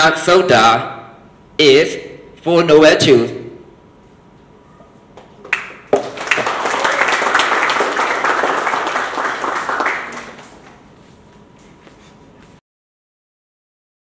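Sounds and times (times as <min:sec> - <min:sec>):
audience applauding: 0:05.5 - 0:10.8.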